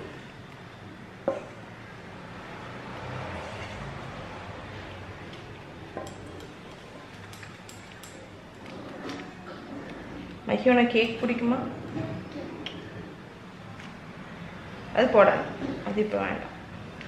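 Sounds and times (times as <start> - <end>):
utensils clicking: 5.3 - 9.3.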